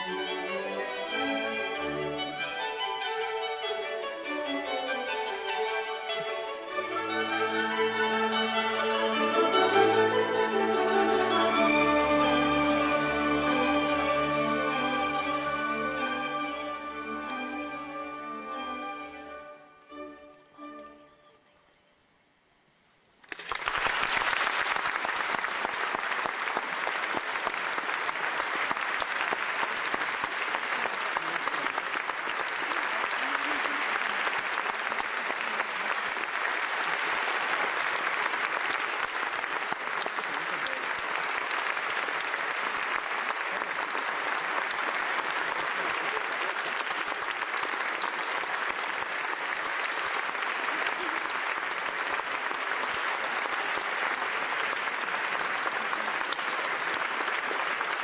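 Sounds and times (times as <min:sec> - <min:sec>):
audience applauding: 0:23.2 - 0:58.0.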